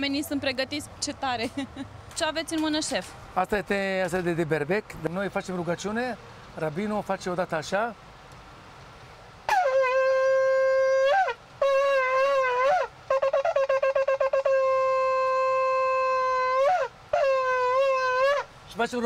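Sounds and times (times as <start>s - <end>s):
shofar blasts: 9.5s - 18.5s.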